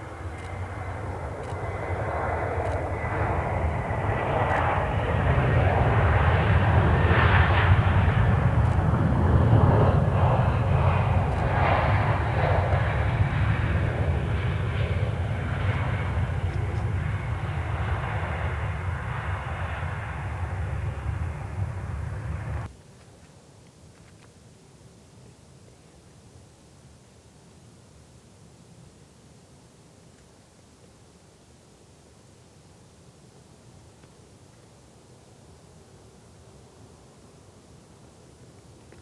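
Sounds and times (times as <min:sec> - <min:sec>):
airliner engines passing: 0:00.0 - 0:22.7.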